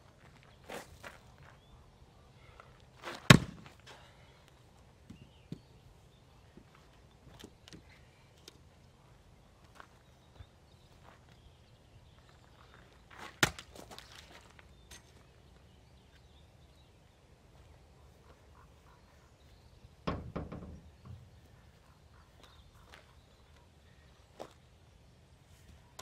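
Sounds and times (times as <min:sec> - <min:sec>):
axe striking log: 0:03.3 - 0:03.7, 0:13.4 - 0:13.7.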